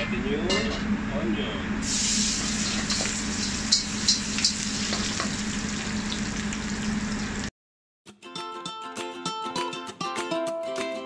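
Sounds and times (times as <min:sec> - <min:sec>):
onion sizzling in hot oil: 0:01.8 - 0:07.5.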